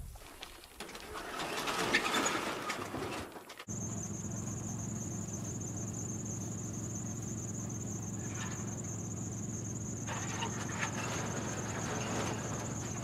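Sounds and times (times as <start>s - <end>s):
crickets chirring: 3.7s - 13.0s.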